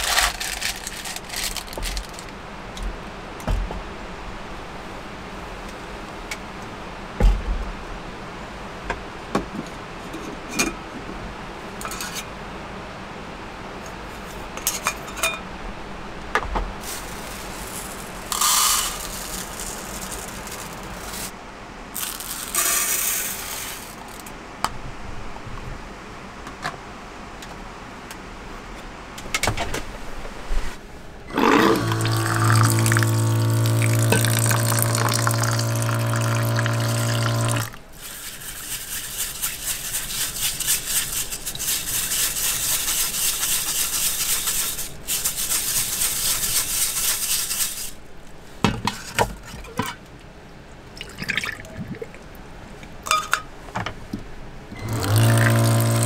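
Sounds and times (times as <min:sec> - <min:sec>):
multi-tone hum: 0:30.4 - 0:38.3, 0:50.5 - 0:56.0.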